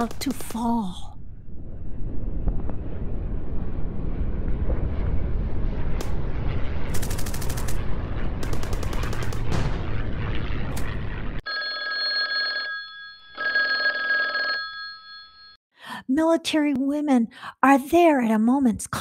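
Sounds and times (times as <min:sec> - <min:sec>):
heavy rumble: 0:00.0 - 0:11.4
machine-gun fire: 0:06.8 - 0:11.2
old telephone bell ringing: 0:11.4 - 0:15.6.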